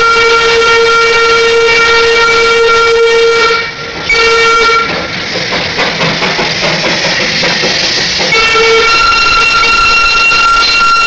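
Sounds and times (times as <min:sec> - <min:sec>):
steam whistle: 0:00.0 - 0:04.9, 0:08.3 - 0:11.0
steam hissing: 0:00.1 - 0:11.0.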